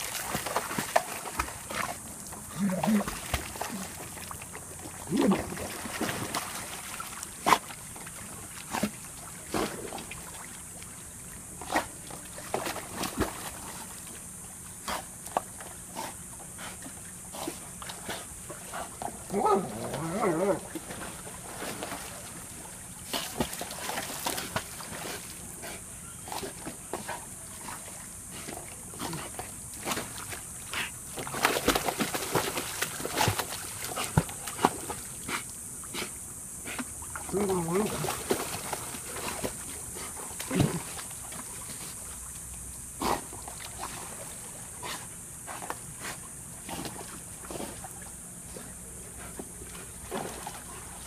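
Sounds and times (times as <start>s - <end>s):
water splashes and knocks: 0.0s - 10.6s, 36.7s - 42.4s, 49.4s - 50.8s.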